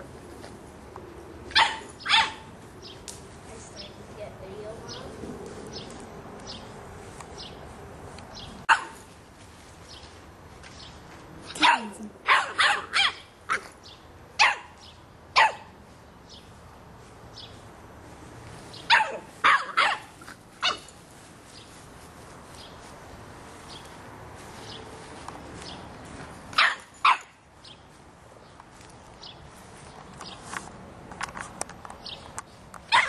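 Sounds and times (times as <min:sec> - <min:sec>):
puppy barking: 0:01.5 - 0:02.5, 0:08.7 - 0:09.1, 0:11.5 - 0:13.7, 0:14.4 - 0:14.8, 0:15.4 - 0:15.7, 0:18.9 - 0:20.9, 0:26.6 - 0:27.4.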